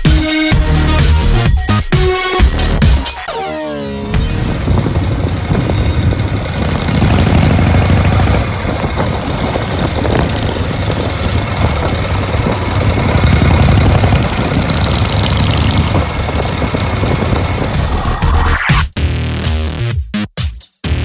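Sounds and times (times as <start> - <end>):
motorcycles engines roaring: 2.4 - 18.8.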